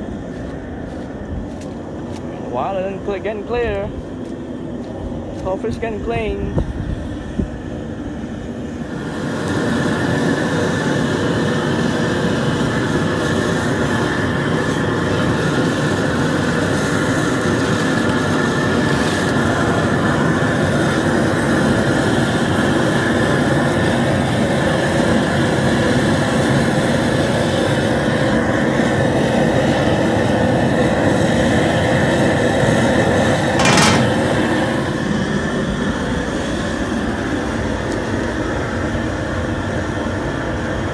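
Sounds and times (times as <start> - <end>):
gas burner rushing: 0.0 - 39.7
sharp knock: 33.6 - 34.4.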